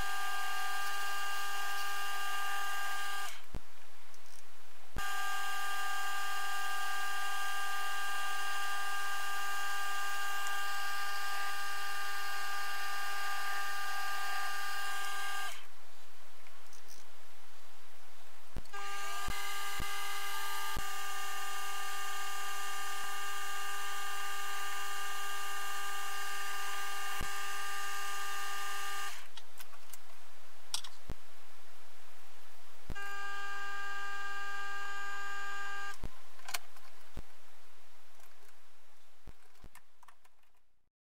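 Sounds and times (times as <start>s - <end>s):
drill boring into brass: 5.0s - 15.6s, 18.7s - 29.2s.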